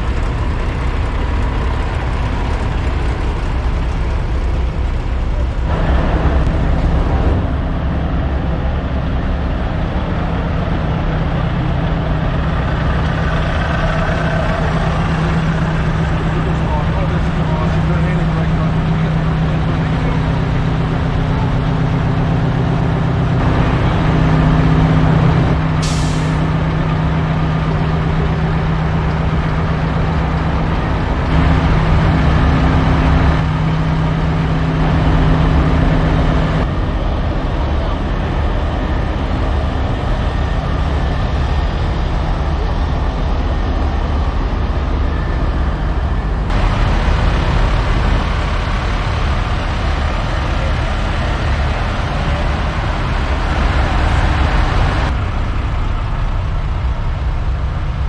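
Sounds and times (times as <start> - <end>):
diesel truck engines idling: 0.0 - 58.0
air release hiss: 25.8 - 26.4.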